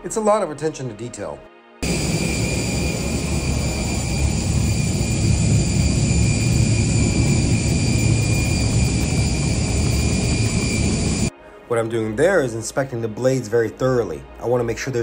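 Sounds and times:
turbine engine whine: 0:01.8 - 0:11.3.

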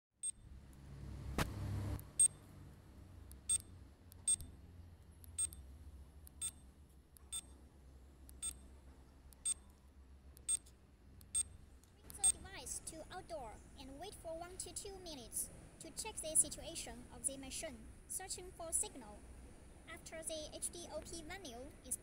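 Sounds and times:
low steady hum: 0:00.2 - 0:22.0
short high beeps: 0:03.5 - 0:03.7, 0:04.3 - 0:04.5, 0:05.4 - 0:05.6.

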